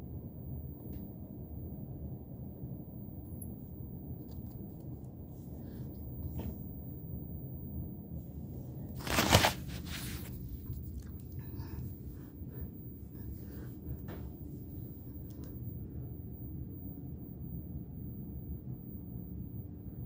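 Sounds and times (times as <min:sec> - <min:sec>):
low room hum: 0:00.0 - 0:20.0
rustling scrape: 0:08.9 - 0:11.1.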